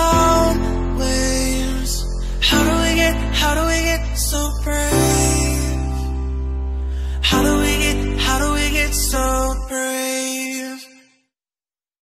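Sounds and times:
deep bass: 0.0s - 9.7s.

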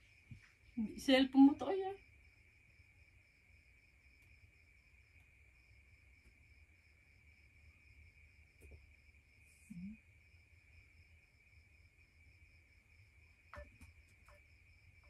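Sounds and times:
faint high pulsed chirping: 0.0s - 15.0s
faint steady high tone: 7.6s - 11.0s, 13.2s - 15.0s.

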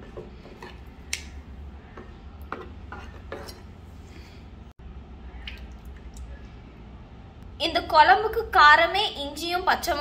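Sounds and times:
ladle clinking and scraping pot: 2.0s - 3.8s.

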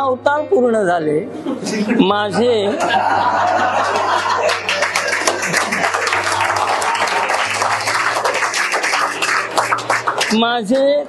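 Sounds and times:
audience applauding: 2.8s - 10.5s.

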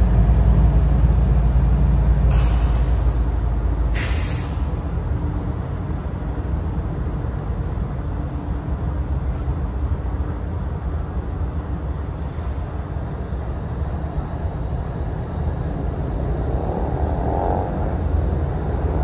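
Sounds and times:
diesel locomotive rumbling: 0.0s - 19.0s
air hissing: 2.3s - 4.8s.

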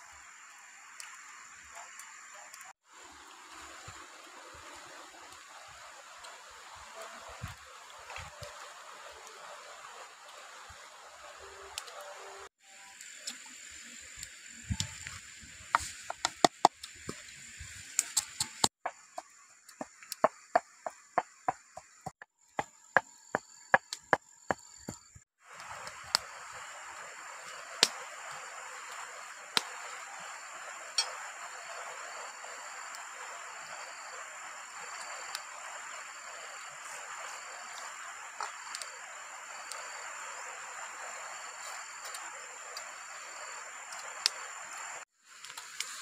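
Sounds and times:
steady hiss: 0.0s - 46.0s
thin high insect-like tone: 8.1s - 16.2s, 22.7s - 46.0s.

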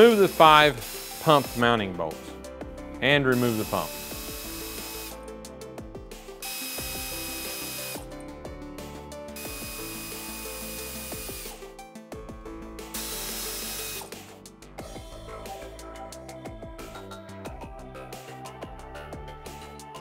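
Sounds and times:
power tool spurts: 0.0s - 2.3s, 3.3s - 5.2s, 6.4s - 8.2s, 9.4s - 11.7s, 12.8s - 14.4s
soft background music: 0.0s - 20.0s.

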